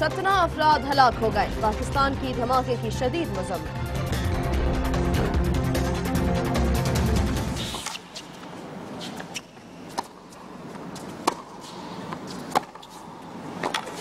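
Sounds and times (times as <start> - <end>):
tennis ball struck by rackets: 9.0 - 14.0.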